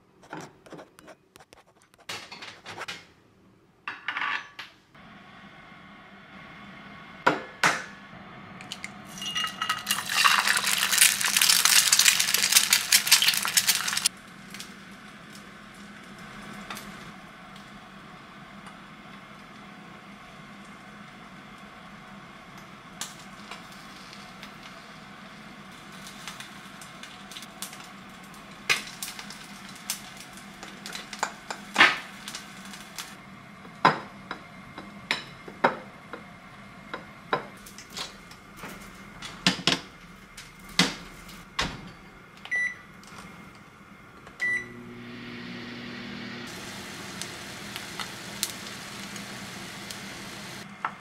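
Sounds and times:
microwave humming: 0:05.0 - 0:51.0
microwave keypad beeps: 0:42.5 - 0:42.8, 0:44.4 - 0:44.7.

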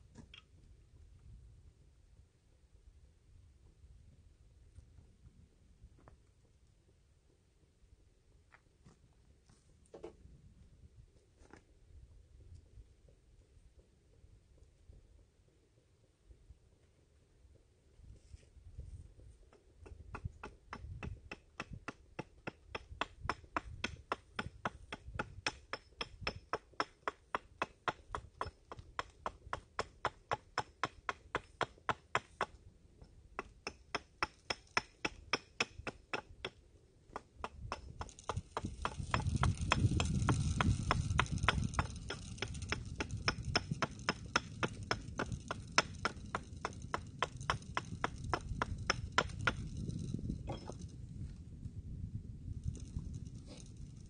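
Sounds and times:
hand tool cutting wood: 0:19.5 - 0:32.6, 0:33.4 - 0:50.9, 0:52.6 - 0:54.0
low rumbling noise: 0:38.2 - 0:54.0.

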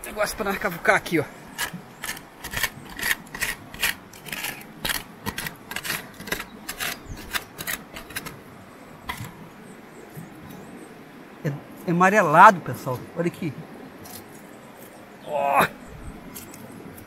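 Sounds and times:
hand tool scraping ground: 0:01.5 - 0:08.4, 0:09.1 - 0:09.4.

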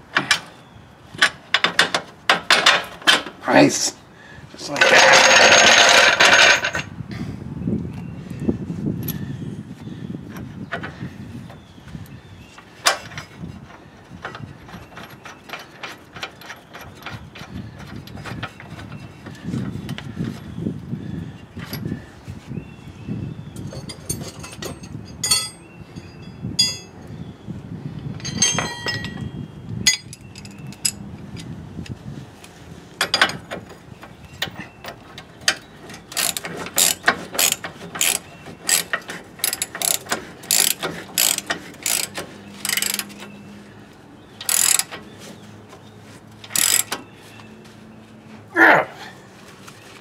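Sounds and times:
metal tools clinking: 0:04.6 - 0:06.9, 0:23.6 - 0:27.0, 0:28.2 - 0:31.5, 0:33.0 - 0:43.5, 0:44.4 - 0:45.1, 0:46.4 - 0:47.1
socket ratchet clicking: 0:36.1 - 0:43.2, 0:44.4 - 0:45.0, 0:46.5 - 0:47.0.

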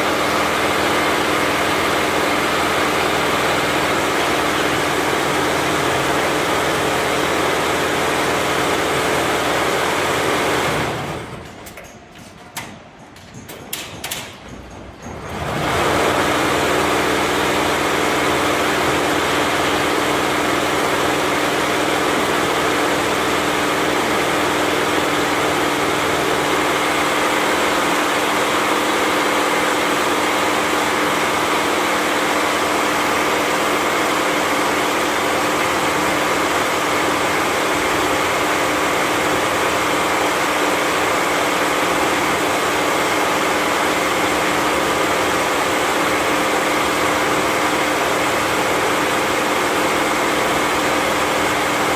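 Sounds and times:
embroidery machine clattering: 0:00.0 - 0:18.5.

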